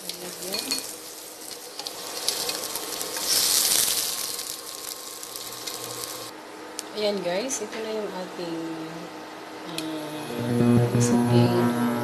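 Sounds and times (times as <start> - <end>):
vegetables sizzling in oil: 0.0 - 6.3.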